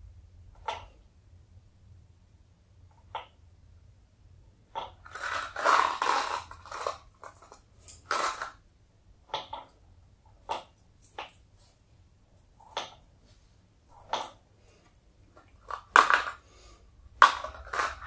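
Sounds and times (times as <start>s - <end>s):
steel balls rattling in a cup: 5.0s - 8.6s, 15.4s - 16.5s, 17.2s - 18.0s
balls clicking on wooden board: 15.5s - 16.4s, 17.2s - 18.0s.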